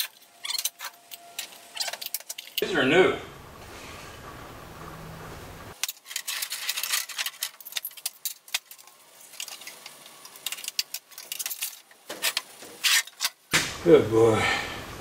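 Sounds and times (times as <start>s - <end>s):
metal tubing clinking and scraping: 0.0s - 2.7s, 5.8s - 13.4s
low steady hum: 0.0s - 5.8s.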